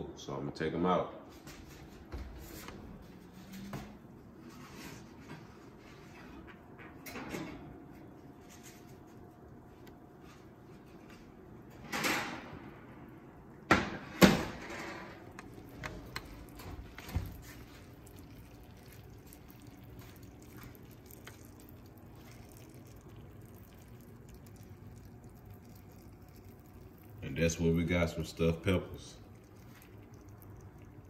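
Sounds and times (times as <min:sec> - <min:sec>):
oven door shutting: 0:11.8 - 0:12.9, 0:13.7 - 0:15.3.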